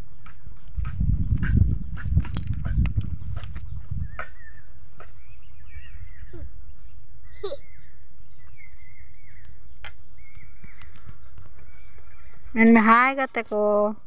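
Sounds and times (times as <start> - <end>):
faint bird chirps: 3.1 - 13.8.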